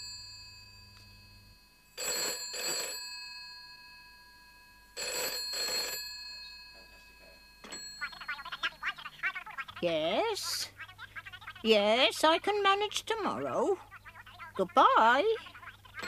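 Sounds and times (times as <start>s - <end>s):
telephone bell ringing: 0.0s - 9.4s.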